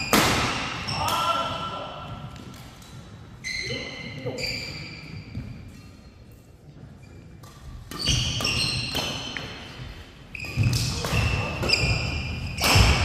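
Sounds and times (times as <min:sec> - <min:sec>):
shoes squeaking on court: 0:02.4 - 0:12.8
racket striking shuttlecock: 0:07.4 - 0:09.7.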